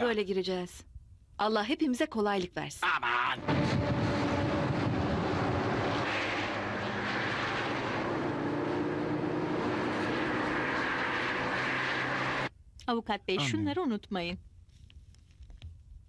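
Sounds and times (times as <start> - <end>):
road and traffic noise: 3.4 - 12.5
motorcycle engine running at speed: 3.5 - 10.5.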